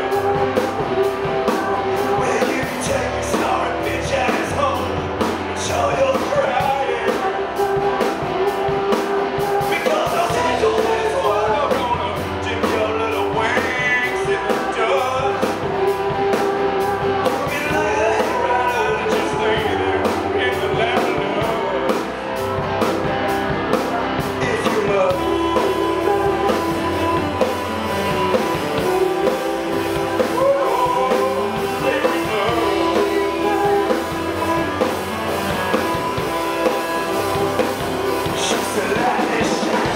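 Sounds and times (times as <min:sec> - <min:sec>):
live rock band playing: 0:00.0 - 0:39.9
person singing: 0:00.0 - 0:39.9.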